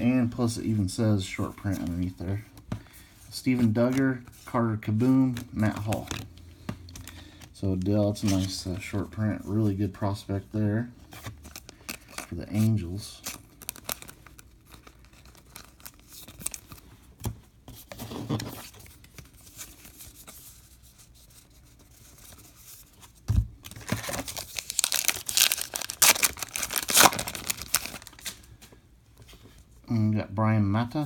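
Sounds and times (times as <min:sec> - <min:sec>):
cards shuffling: 0:03.5 - 0:08.8, 0:11.1 - 0:29.4
wrapper crinkling and tearing: 0:13.0 - 0:16.8, 0:23.6 - 0:28.5.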